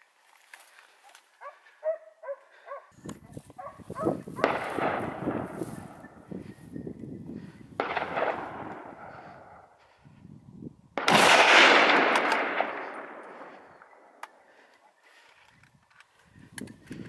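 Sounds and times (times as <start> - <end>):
gunshots echoing: 4.0 - 6.2, 7.8 - 9.7, 11.0 - 14.5.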